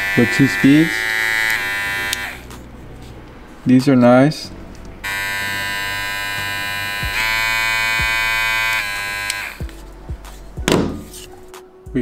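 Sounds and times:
hair clipper running: 0.0 - 2.5, 5.0 - 9.6.

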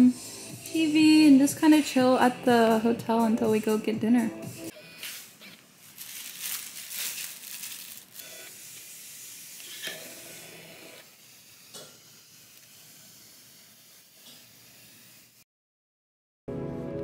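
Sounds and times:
plastic containers crinkling: 5.8 - 8.5.

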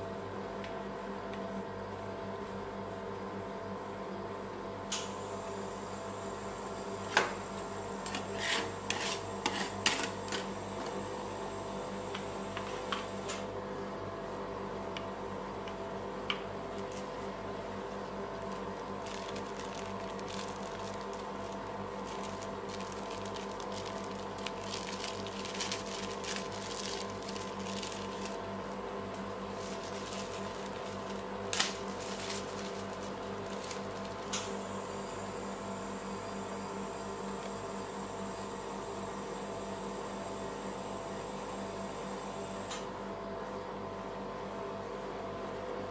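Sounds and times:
machine humming: 5.3 - 39.6.

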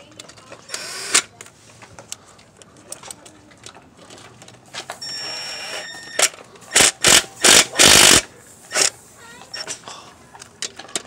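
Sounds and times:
metal parts clicking: 9.6 - 11.0.

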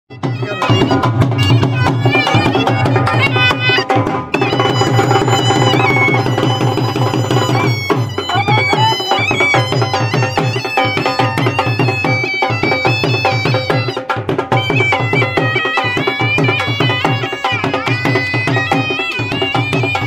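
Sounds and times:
drum beating fast rhythm: 0.1 - 20.0
reedy wind instrument melody: 0.1 - 20.0.

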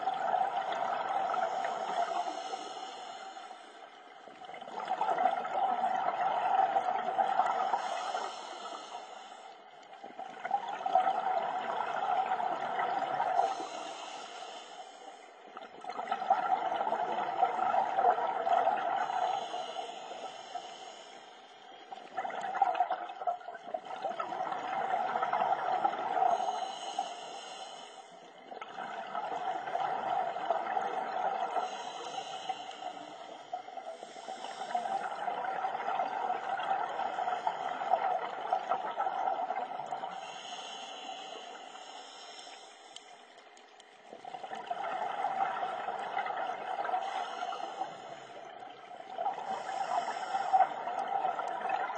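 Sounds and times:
bubbling exhale: 0.0 - 3.8, 21.9 - 43.1, 44.2 - 51.9
diver breathing through regulator: 1.3 - 3.8, 7.4 - 9.7, 12.8 - 15.4, 18.4 - 21.5, 25.9 - 28.3, 31.0 - 38.4, 40.0 - 43.3, 46.5 - 48.6, 49.2 - 51.4.

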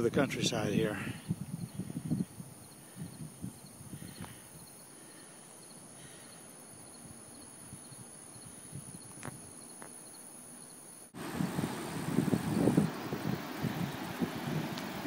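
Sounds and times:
faint ticks: 4.2 - 4.4, 14.7 - 15.0.

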